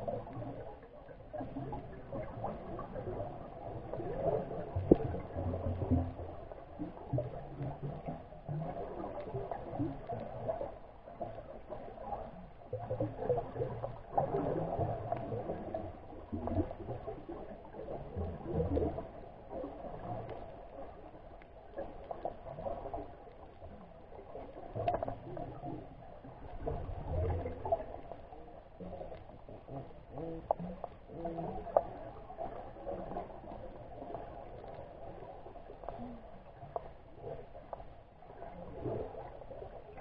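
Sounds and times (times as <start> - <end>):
underwater rumbling and swishing: 0.0 - 40.0
faint clicks: 20.1 - 25.6.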